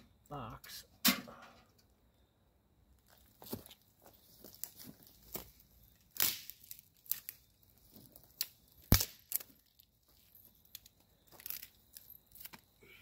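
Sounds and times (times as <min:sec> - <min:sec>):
dry material crackling and snapping: 0:03.0 - 0:12.7.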